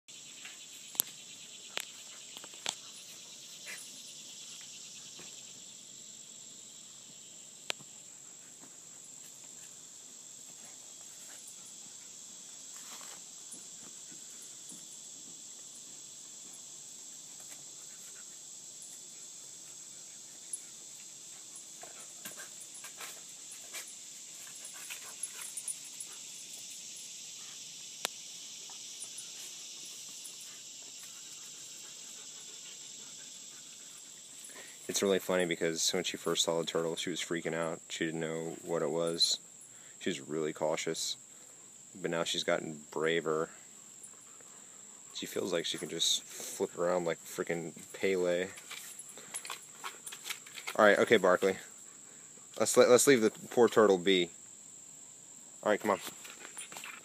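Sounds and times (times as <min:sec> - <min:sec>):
insect chorus: 0:00.1 - 0:57.0.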